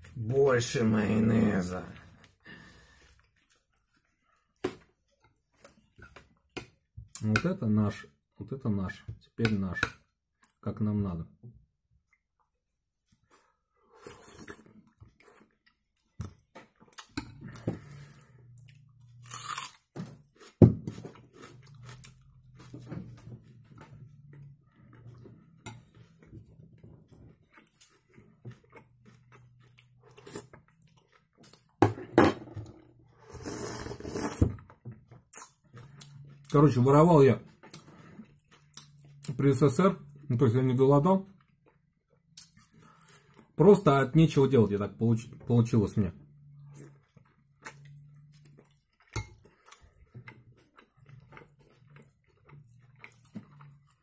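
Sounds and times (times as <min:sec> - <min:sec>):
chewing: 0:13.1 - 0:31.8, 0:34.7 - 0:40.3, 0:46.3 - 0:54.0
slurping soup: 0:33.1 - 0:34.6.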